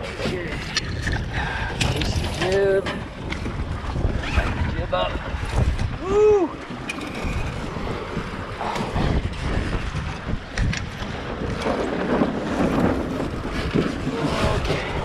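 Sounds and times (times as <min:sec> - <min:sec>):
water slapping along hulls: 0:00.0 - 0:15.0
wind buffeting microphone: 0:00.0 - 0:15.0.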